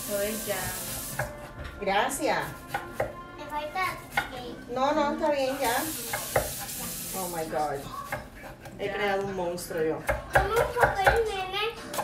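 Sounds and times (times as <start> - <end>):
knife chopping on wooden board: 2.5 - 3.2, 4.0 - 4.4, 10.0 - 11.3.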